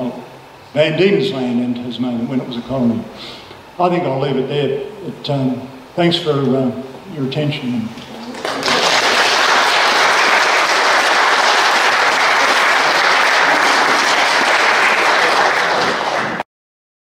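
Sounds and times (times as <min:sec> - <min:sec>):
audience applauding: 0:08.2 - 0:16.4.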